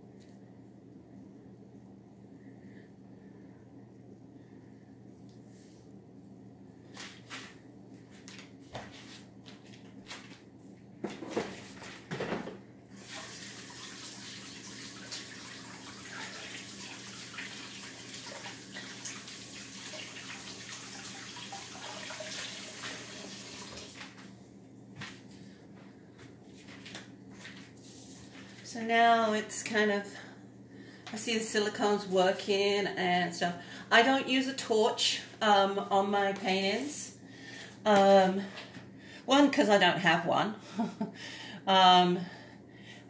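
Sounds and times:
tap water running: 13.0s - 24.2s.

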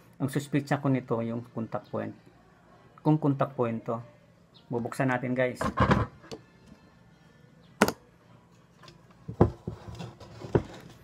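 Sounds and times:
knocks on workbench: 5.6s - 6.1s.

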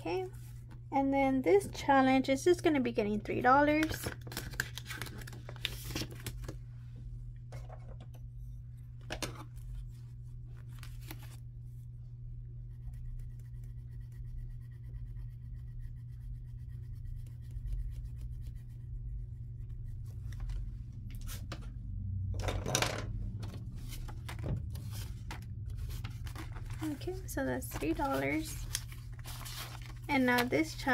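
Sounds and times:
low steady hum: 0.0s - 30.9s
paper and plastic rustling: 3.8s - 6.6s, 23.4s - 30.9s
pencil scratching on paper: 12.7s - 20.2s.

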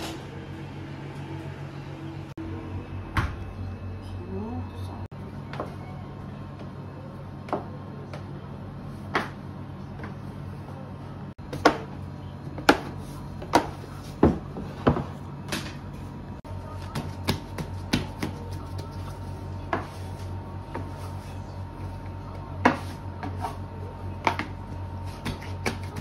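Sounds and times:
low hum: 0.0s - 7.4s.

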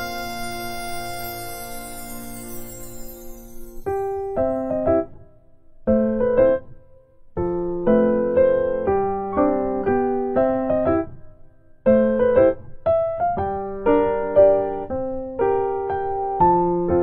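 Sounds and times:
gentle piano music: 0.0s - 17.0s.

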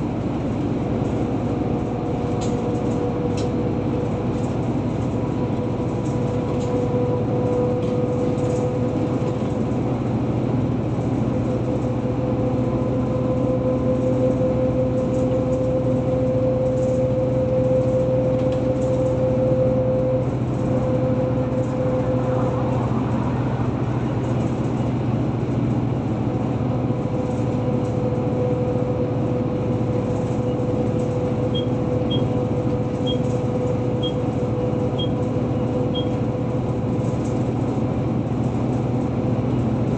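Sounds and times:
engine and drivetrain hum: 0.0s - 39.9s
tyre and road noise: 0.0s - 39.9s.

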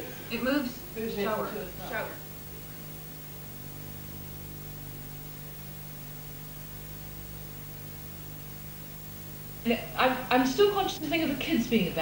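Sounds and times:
low even hum: 0.0s - 12.0s
tape hiss: 0.0s - 12.0s.

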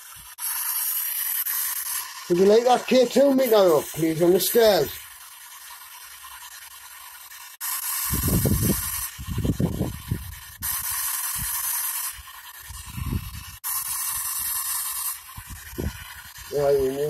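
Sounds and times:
garbled broadcast scraps: 0.4s - 17.0s
radio static hiss: 2.3s - 5.0s, 15.8s - 17.0s.

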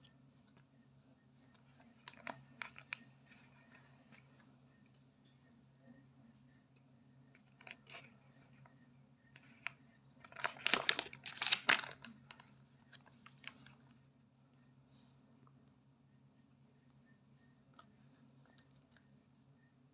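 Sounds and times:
paper rustling and crinkling: 10.2s - 13.8s.

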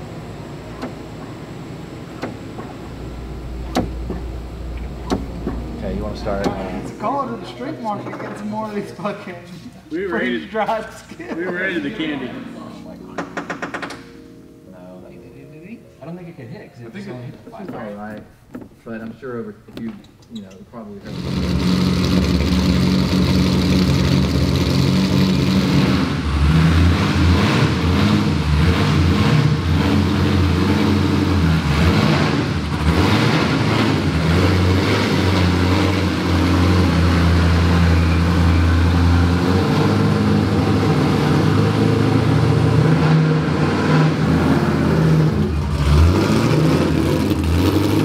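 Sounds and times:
car engine running: 0.0s - 8.4s, 21.0s - 48.0s.

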